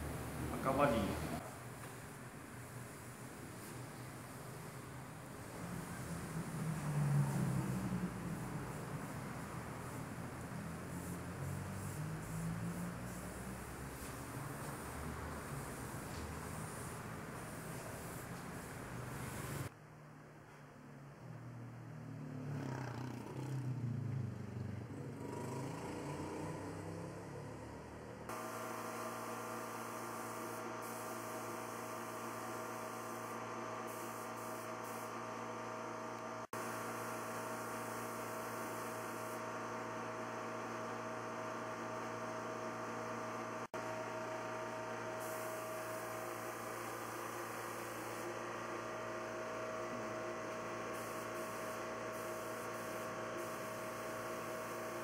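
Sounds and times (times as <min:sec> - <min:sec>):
air compressor humming: 0:00.0 - 0:19.7, 0:24.9 - 0:55.0
spray gun hissing: 0:02.6 - 0:19.7, 0:28.4 - 0:35.1, 0:45.2 - 0:48.3, 0:50.9 - 0:55.0.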